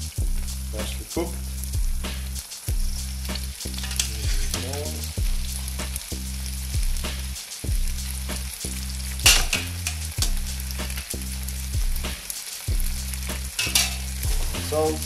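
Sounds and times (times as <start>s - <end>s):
sauce sizzling in a frying pan: 0.0s - 15.0s.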